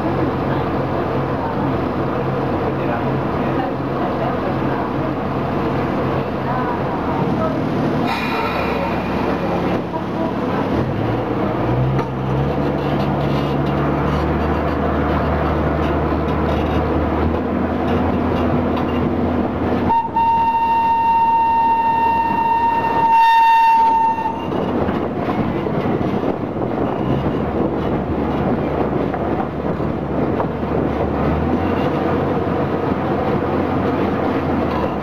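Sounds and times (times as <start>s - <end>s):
train running rumble: 0.0s - 35.0s
steam locomotive whistle: 19.9s - 24.6s.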